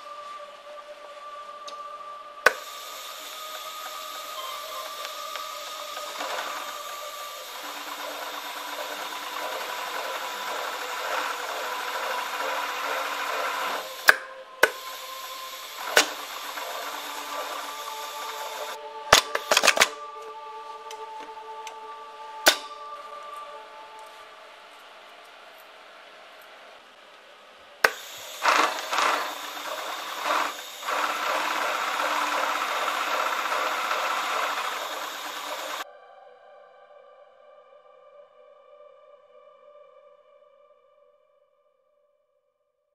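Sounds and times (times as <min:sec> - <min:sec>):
faint hum: 0:00.0 - 0:41.0
sewing machine stitching: 0:02.5 - 0:19.9, 0:27.9 - 0:35.8.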